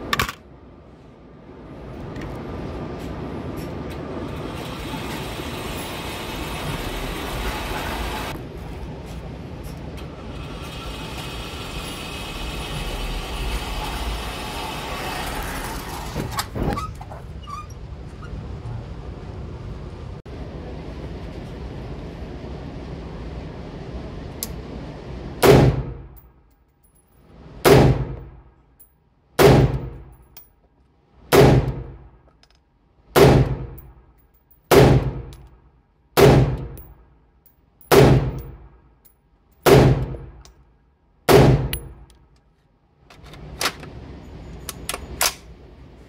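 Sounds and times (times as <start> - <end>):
rifle shots echoing indoors: 33.2 - 33.8, 34.7 - 35.3, 36.2 - 36.8, 37.9 - 38.6, 39.6 - 40.3, 41.3 - 41.9.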